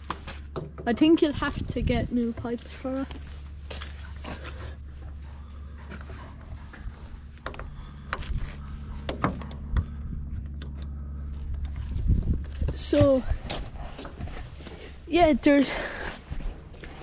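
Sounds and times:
diesel engine idling: 2.5 - 13.4
sharp knocks and clicks: 9.0 - 10.9.

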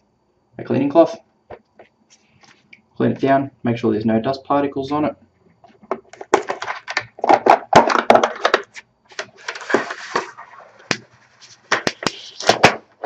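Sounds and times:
plastic clicks and knocks: 5.7 - 9.3.

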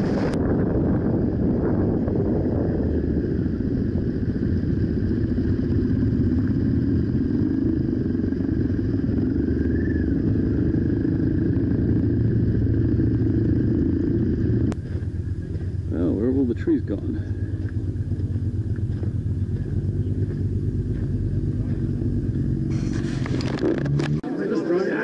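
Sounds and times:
motorcycle engine running: 0.0 - 25.0
wind and road noise: 0.0 - 25.0.

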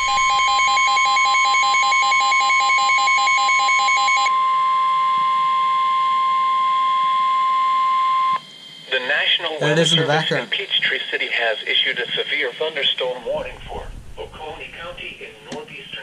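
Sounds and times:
steady warning alarm tone: 0.0 - 9.0.

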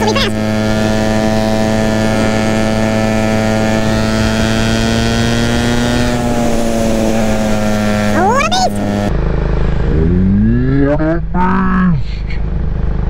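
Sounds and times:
motorcycle engine running: 0.0 - 10.2.

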